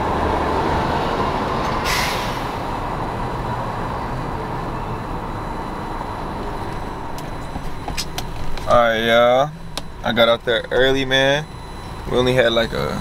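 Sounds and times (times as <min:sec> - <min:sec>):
passing traffic: 0:00.0 - 0:13.0.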